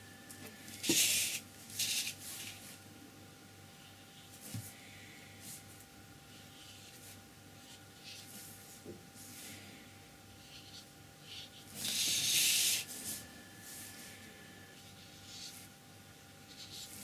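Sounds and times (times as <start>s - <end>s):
paintbrush strokes on paper: 10.4s - 15.7s.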